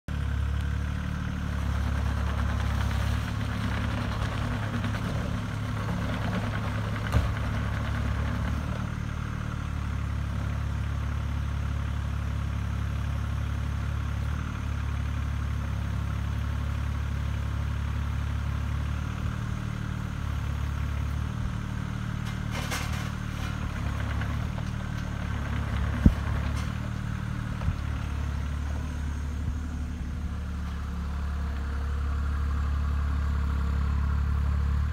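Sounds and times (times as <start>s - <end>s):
excavator diesel engine running: 0.1s - 34.9s.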